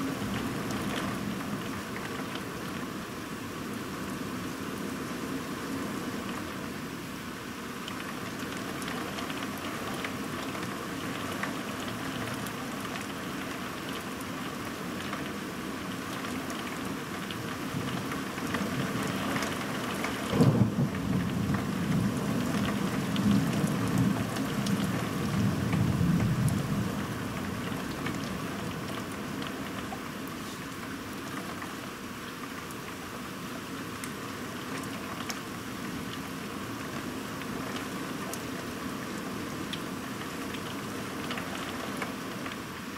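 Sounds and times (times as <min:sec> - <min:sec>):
heavy rain falling: 0:00.0 - 0:42.9
thunder cracking and rumbling: 0:20.3 - 0:24.3.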